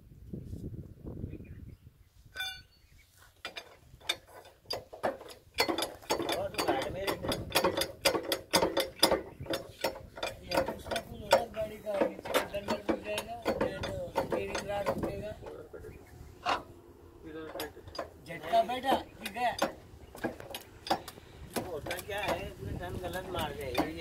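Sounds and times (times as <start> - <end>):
screw jack ratcheting clicks: 3.4 - 11.6.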